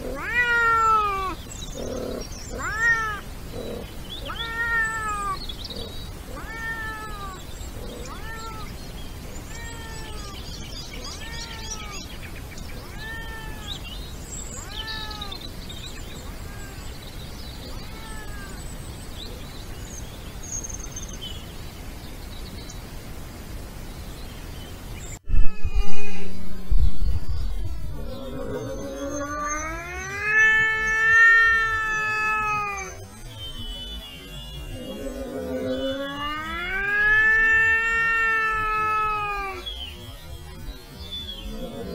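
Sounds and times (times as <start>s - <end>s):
wildcat meowing: 0.0s - 8.8s, 9.4s - 12.1s, 12.7s - 13.9s, 14.5s - 15.5s, 16.1s - 17.0s, 17.6s - 18.6s, 25.3s - 33.1s, 34.7s - 39.8s.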